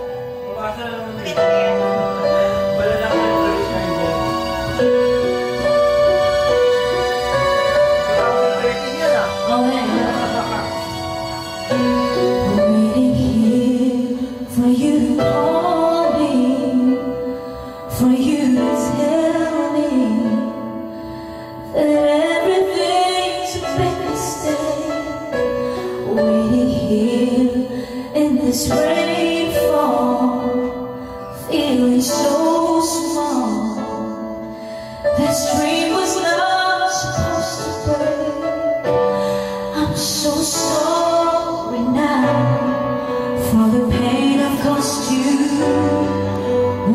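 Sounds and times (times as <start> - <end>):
backing track music: 0.0 - 46.9
woman singing into microphone: 12.1 - 20.8, 21.6 - 34.4, 35.1 - 46.9.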